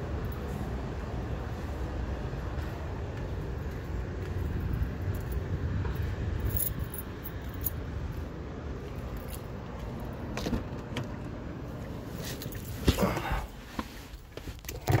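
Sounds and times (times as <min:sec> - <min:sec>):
keys jangling: 0:06.3 - 0:07.8.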